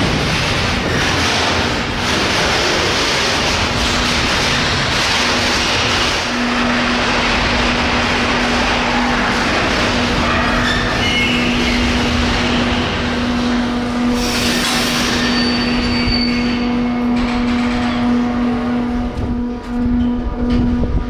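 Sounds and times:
wagon wheels rumbling on rails: 0:00.0 - 0:21.0
wheels squealing: 0:08.3 - 0:13.0, 0:14.0 - 0:18.4.

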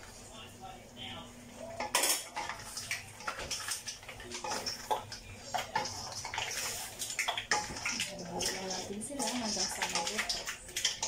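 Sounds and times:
wooden spoon scraping metal wok: 0:04.4 - 0:11.0.

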